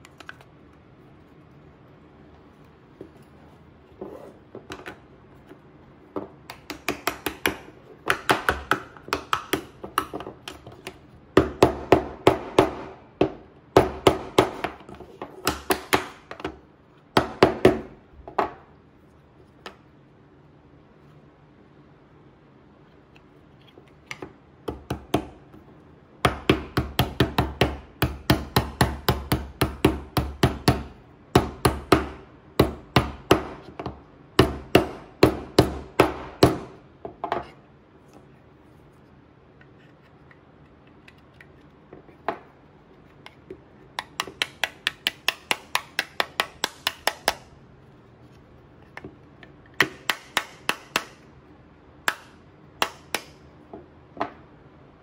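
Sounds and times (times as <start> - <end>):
mallet tapping wooden pieces: 6.2 - 16.6, 43.2 - 47.5, 49.7 - 51.2.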